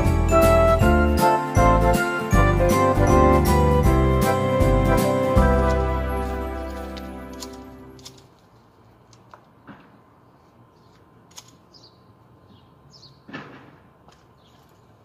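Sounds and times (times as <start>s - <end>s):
background music: 0.0s - 8.1s.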